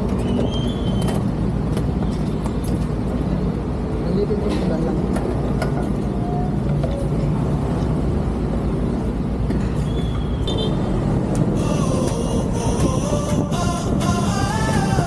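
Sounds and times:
road traffic rumble: 0.0 - 15.0
engine running: 10.5 - 15.0.

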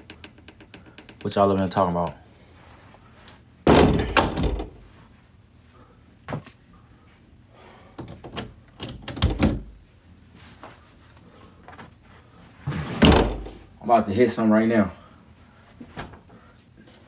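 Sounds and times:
dull thuds and knocks: 3.6 - 4.9.

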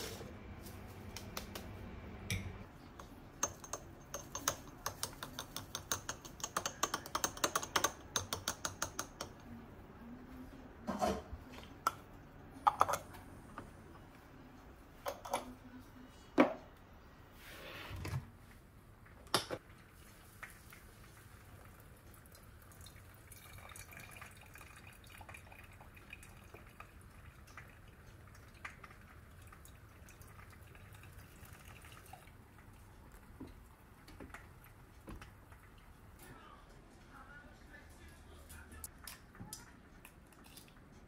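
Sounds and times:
coffee dripping into mug: 19.6 - 36.1
water trickling onto coffee: 19.6 - 36.2.

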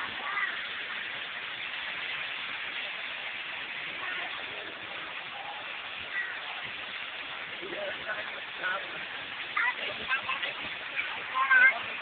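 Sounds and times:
outdoor background hiss: 0.0 - 12.0
faint voices: 2.7 - 12.0.

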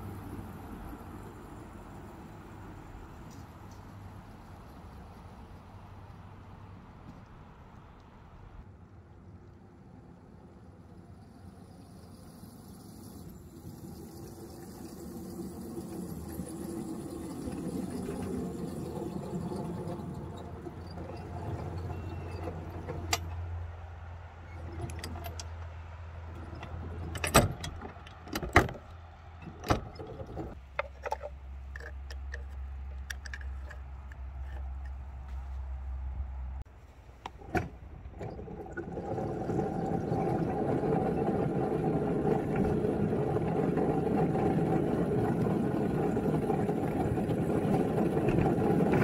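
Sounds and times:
metal coupler clanks: 26.4 - 35.0.

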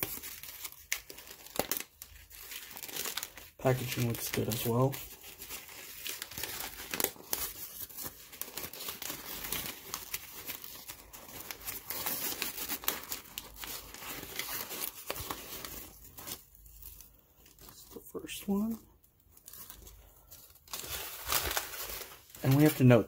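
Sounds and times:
newspaper crinkling and rustling: 0.0 - 23.0.

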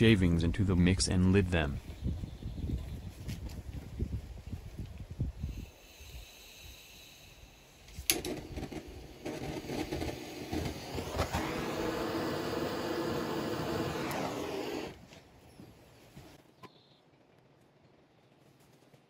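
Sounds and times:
gas torch flame hissing: 5.4 - 15.0.

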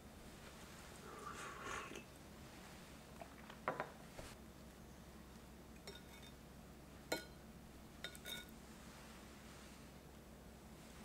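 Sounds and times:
cup set down on counter: 3.6 - 4.0.

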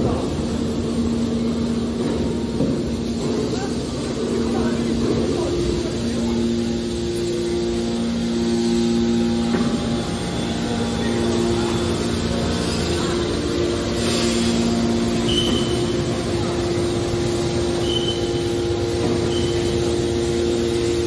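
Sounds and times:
hydraulic power unit humming: 0.0 - 21.0.

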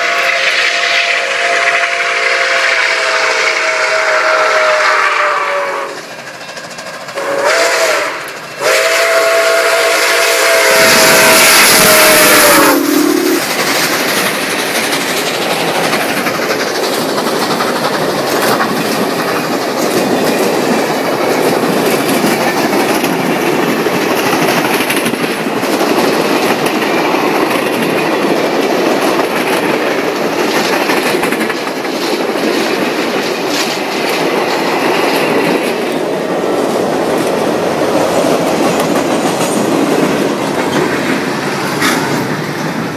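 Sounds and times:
steam locomotive whistle: 0.0 - 6.1, 7.2 - 13.6.

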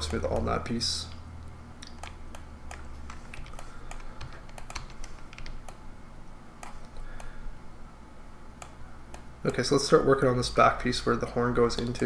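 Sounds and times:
keyboard and mouse clicking: 0.0 - 0.5, 1.8 - 5.8, 6.6 - 7.3
low steady hum: 0.0 - 12.0.

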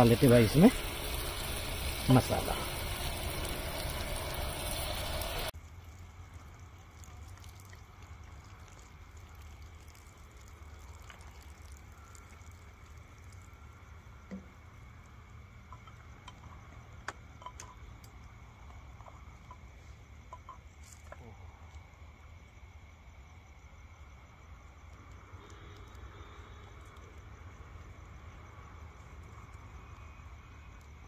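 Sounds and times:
loud hissing: 0.0 - 5.5
curry simmering pops: 0.0 - 13.7.

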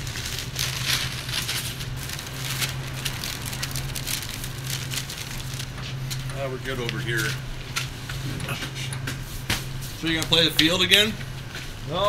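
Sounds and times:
wrapping crinkling: 0.0 - 7.4
steady low hum: 0.0 - 12.0.

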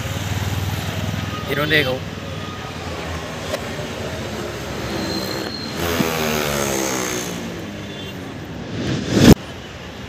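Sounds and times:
firecracker hissing: 8.5 - 9.5
firecracker crack: 8.6 - 9.5.

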